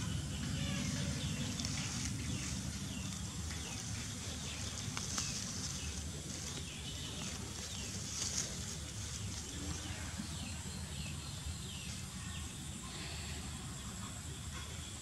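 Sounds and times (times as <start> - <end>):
grass rustling: 0.0 - 10.5.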